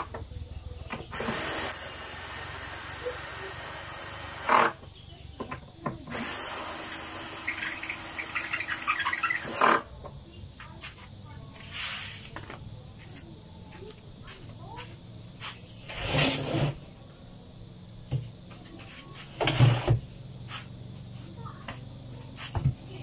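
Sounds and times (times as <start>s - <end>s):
cordless drill driving screws: 1.1s - 4.8s, 6.1s - 9.8s.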